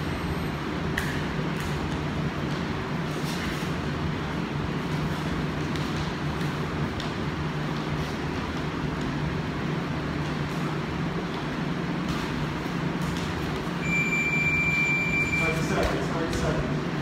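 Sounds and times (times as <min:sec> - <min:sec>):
gym room hum and rushing: 0:00.0 - 0:17.0
high electronic timer beep: 0:13.8 - 0:15.6.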